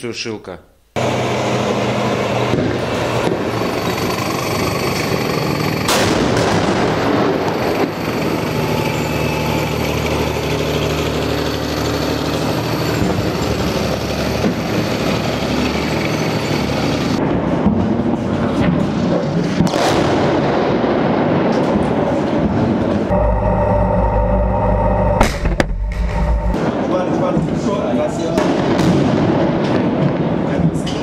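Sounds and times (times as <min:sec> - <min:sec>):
engine low drone: 0:01.0 - 0:17.7, 0:22.4 - 0:26.8
sharp bang: 0:23.1 - 0:27.0.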